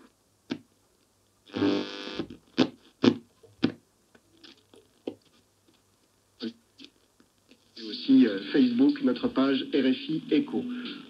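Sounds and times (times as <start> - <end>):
shortwave radio tuning noise: 1.5 - 3.2, 7.8 - 11.0.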